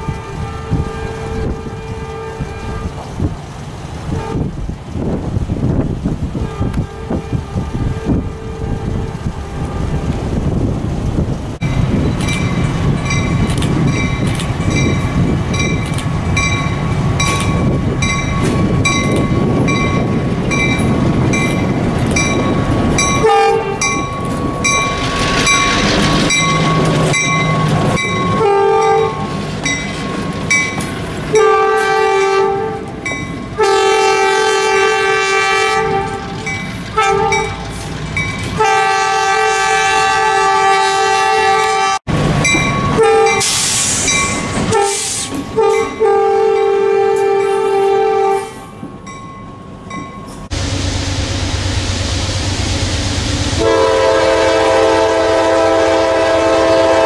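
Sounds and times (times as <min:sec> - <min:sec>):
train horn blasts: 0:00.0 - 0:03.0, 0:04.1 - 0:04.5, 0:06.4 - 0:10.2, 0:23.1 - 0:24.1, 0:28.2 - 0:29.4, 0:31.3 - 0:37.6, 0:38.6 - 0:42.1, 0:43.0 - 0:43.7, 0:44.7 - 0:48.8, 0:53.5 - 0:57.0
locomotive rumbling past: 0:00.0 - 0:57.0
locomotive bell ringing: 0:11.6 - 0:31.8, 0:33.0 - 0:33.5, 0:36.3 - 0:38.7, 0:42.4 - 0:43.5, 0:44.1 - 0:44.7, 0:48.9 - 0:50.6.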